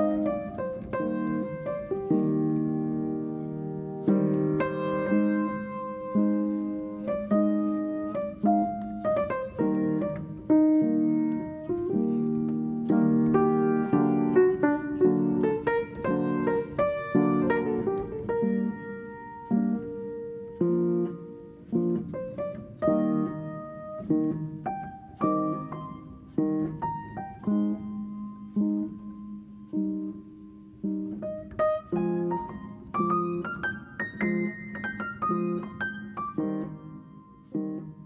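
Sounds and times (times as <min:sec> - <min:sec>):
piano music: 0:00.0 - 0:38.0.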